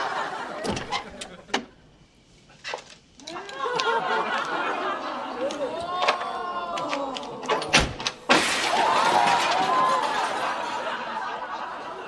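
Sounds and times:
crowd voices reacting: 0:03.2 - 0:07.7, 0:08.6 - 0:12.0
debris clattering: 0:07.5 - 0:10.8
wooden wall crashing down: 0:07.7 - 0:10.5.

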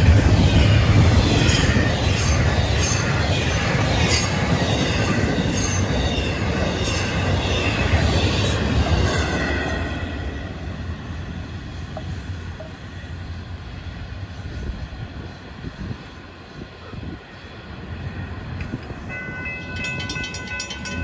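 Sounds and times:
freight train rumbling past: 0:00.0 - 0:21.0
train wheel squeals: 0:00.2 - 0:11.1.

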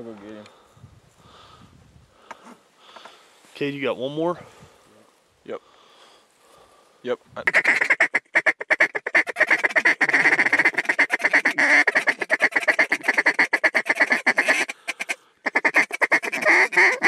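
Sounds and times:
duck call quacking: 0:07.4 - 0:17.0.

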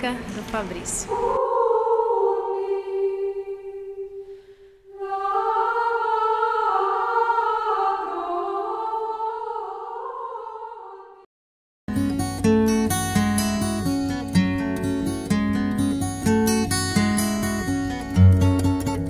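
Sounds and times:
slow unaccompanied singing: 0:01.0 - 0:11.3.

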